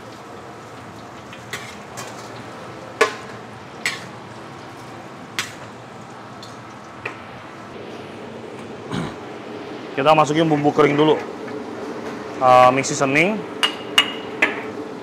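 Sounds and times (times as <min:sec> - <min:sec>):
frying hiss: 0:00.0 - 0:15.0
metal spatula scraping wok: 0:01.5 - 0:02.3.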